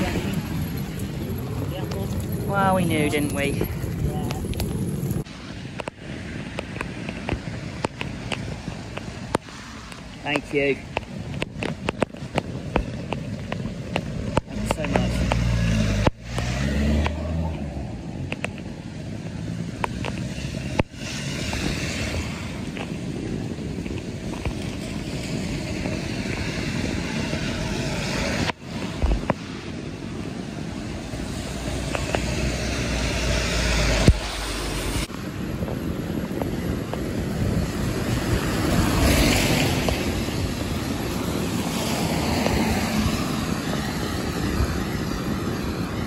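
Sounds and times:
road noise: 0.0 - 46.0
vehicle engine: 12.7 - 29.5, 30.4 - 46.0.

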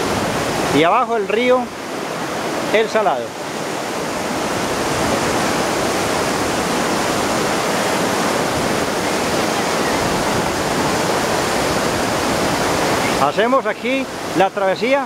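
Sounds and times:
water rushing over rocks: 0.0 - 15.0.

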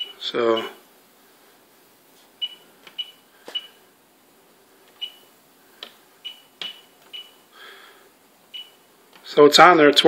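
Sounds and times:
short high touchscreen beeps: 0.0 - 0.8, 2.4 - 3.8, 5.0 - 5.3, 6.2 - 7.4, 8.5 - 8.8.

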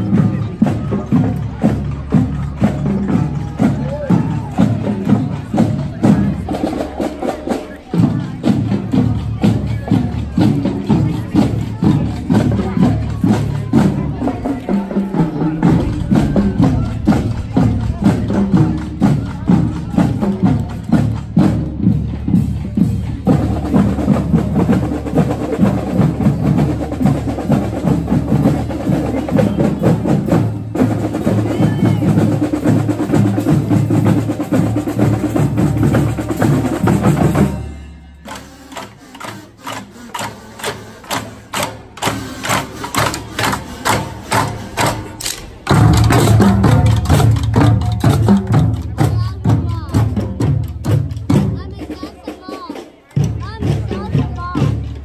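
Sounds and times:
drum-driven music: 0.0 - 55.0
sharp percussion hits: 11.9 - 28.5, 36.4 - 55.0.

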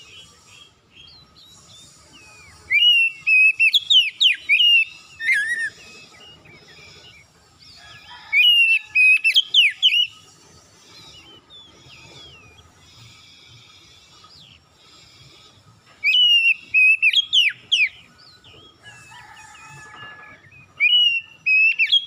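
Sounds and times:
bird singing whistled song: 0.0 - 10.2, 16.0 - 22.0
faint bird chirps: 0.0 - 22.0.

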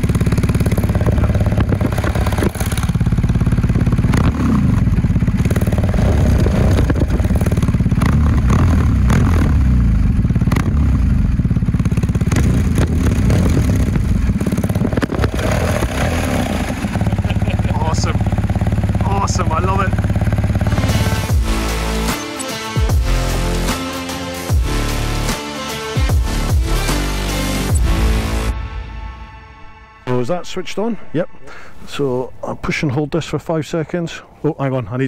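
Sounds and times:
exhaust pops: 0.0 - 21.3
motorcycle engine revving: 0.0 - 28.5.

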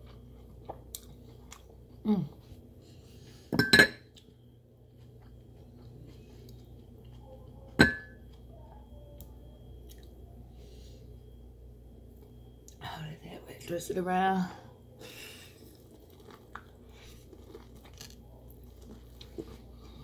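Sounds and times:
tableware clinking: 3.6 - 4.0, 7.8 - 8.2.

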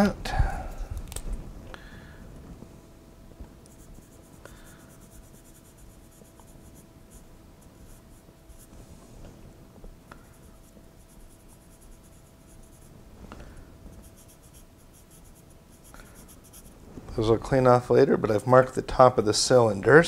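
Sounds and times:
marker scratching on metal: 10.3 - 12.9, 14.0 - 16.7.

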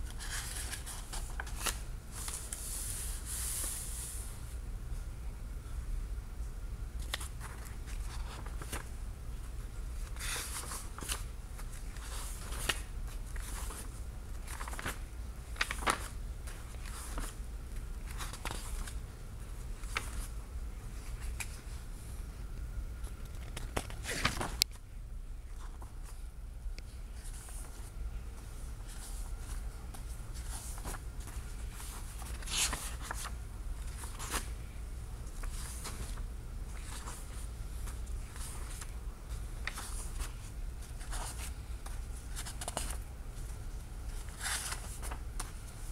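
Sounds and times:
low steady hum: 0.0 - 45.9
book pages turning: 0.1 - 4.2, 7.0 - 8.9, 10.0 - 19.0, 19.6 - 20.3, 23.0 - 24.8, 27.2 - 45.9.

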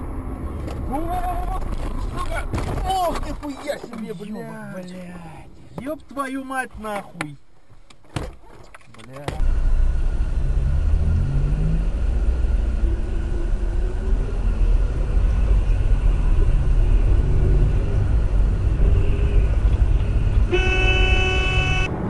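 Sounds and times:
car road and engine rumble: 0.0 - 22.0
car horn blaring: 18.8 - 22.0.

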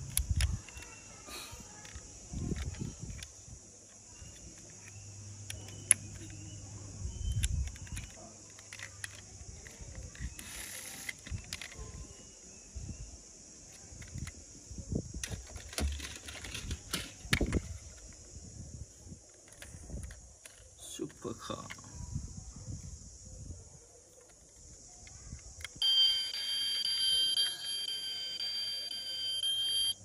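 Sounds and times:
metal toy cars clicking: 7.4 - 12.0, 15.2 - 18.1.

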